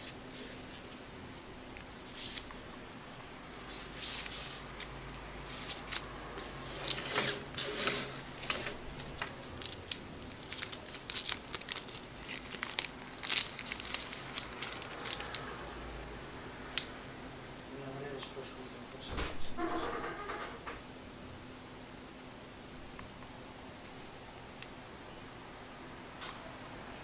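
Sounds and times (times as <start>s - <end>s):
paper leaflets rustling: 3.9s - 15.5s
plastic wrap crinkling: 5.4s - 15.6s.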